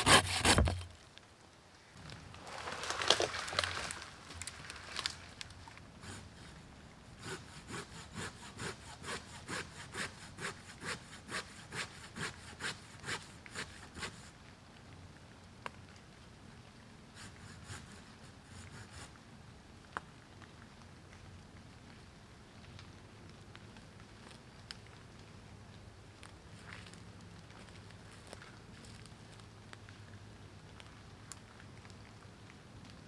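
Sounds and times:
hand saw cutting wood: 0.0 - 0.9, 6.0 - 6.2, 7.2 - 14.3, 17.2 - 19.1.

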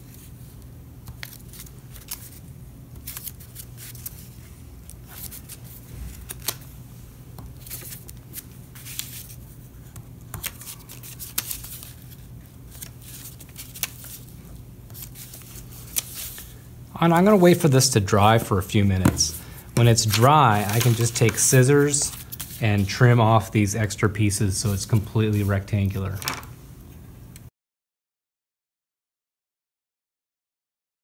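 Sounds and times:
steady low hum: 0.0 - 27.5
paper rustling: 0.1 - 2.4, 3.0 - 6.7, 7.5 - 23.6, 24.5 - 26.5.

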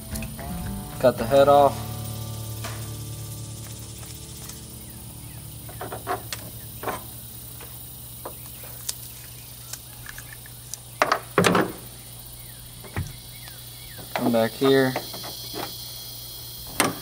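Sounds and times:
shears snipping: 0.0 - 10.9
steady low hum: 0.0 - 11.0.

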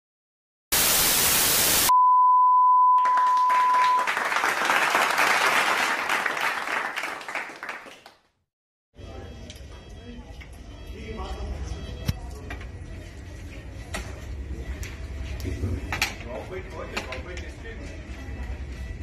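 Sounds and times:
loud static hiss: 0.7 - 1.9
steady high beep: 1.9 - 4.1
applause-like patter: 3.0 - 8.4.

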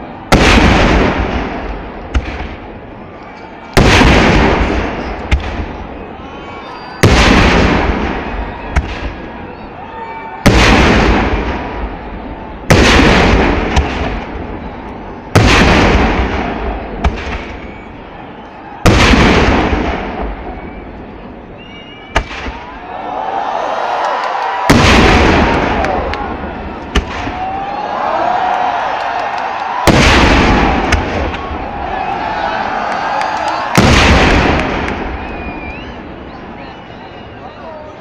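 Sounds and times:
sharp firework cracks: 0.3 - 2.7, 12.7 - 14.4, 15.4 - 17.6, 22.1 - 22.7, 24.5 - 27.6, 28.9 - 31.6, 33.6 - 35.4
firework shells booming: 0.3 - 3.0, 3.7 - 6.0, 7.0 - 9.4, 10.4 - 17.9, 18.8 - 21.0, 22.1 - 22.8, 24.6 - 27.7, 29.6 - 32.1, 33.6 - 36.0.

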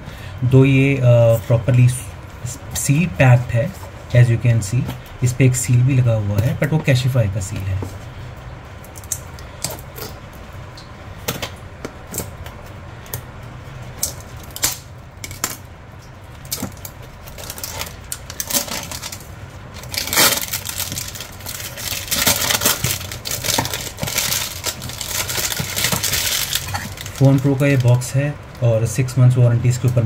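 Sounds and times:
plastic shrink-wrap crackling: 16.4 - 28.2.

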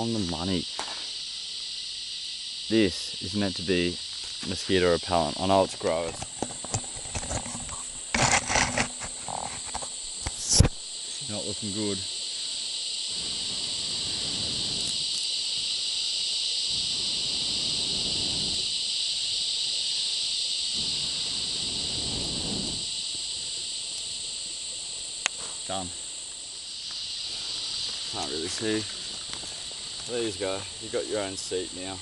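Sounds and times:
insects chirping: 0.0 - 32.0
person blowing into fire: 6.8 - 10.8, 13.0 - 24.4.

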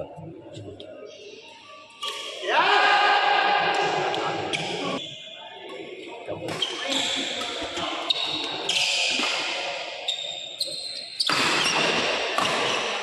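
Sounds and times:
racquet hitting shuttlecock: 6.5 - 8.2, 11.2 - 13.0
shoes squeaking on court: 6.5 - 9.4, 10.0 - 13.0.

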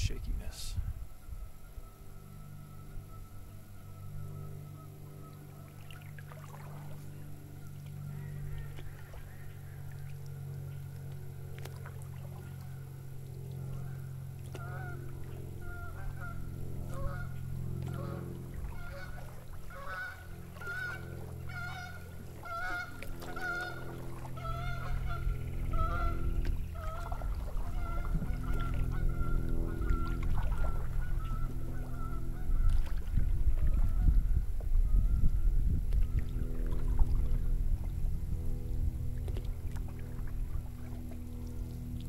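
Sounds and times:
steady low hum: 0.0 - 42.0
waterfowl honking: 1.6 - 7.2, 13.6 - 34.3.

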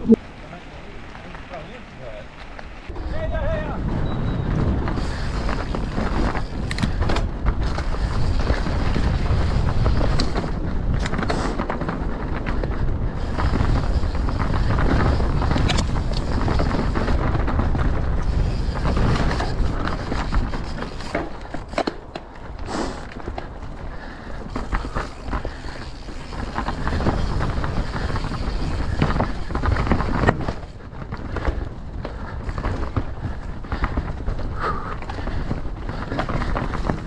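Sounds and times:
mountain bike rolling rumble: 0.0 - 37.0
bike clicks and rattles: 1.0 - 37.0
wind buffeting microphone: 2.9 - 37.0.

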